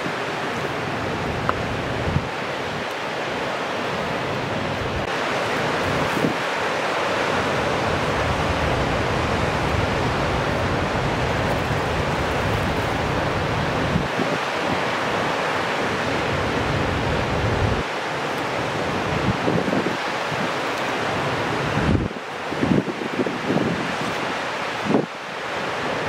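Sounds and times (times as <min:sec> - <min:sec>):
wind buffeting microphone: 0:01.0 - 0:02.9, 0:07.5 - 0:17.9, 0:18.9 - 0:20.6, 0:21.2 - 0:25.1.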